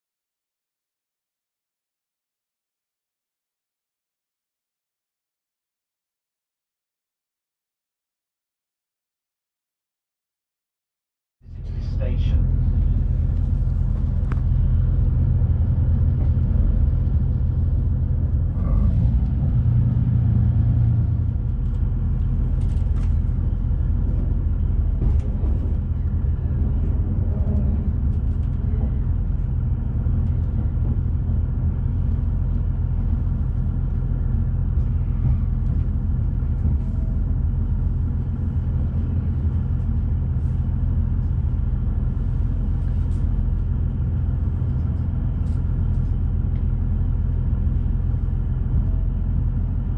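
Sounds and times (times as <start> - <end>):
train interior rumble: 11.4 - 49.9.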